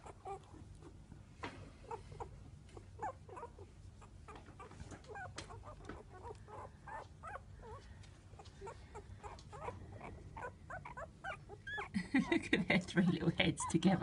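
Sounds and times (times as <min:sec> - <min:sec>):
puppies squeaking and whimpering: 0:00.0 - 0:01.0, 0:01.8 - 0:12.0.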